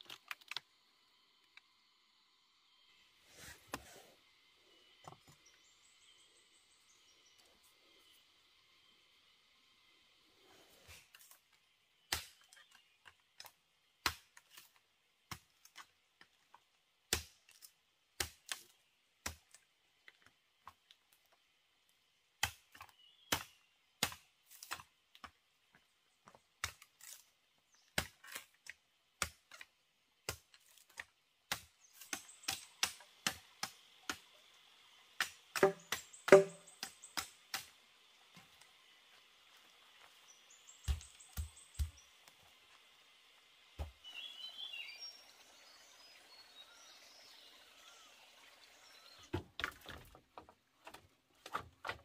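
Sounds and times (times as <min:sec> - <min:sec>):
tool knocking on bamboo: 0:35.6 - 0:37.3.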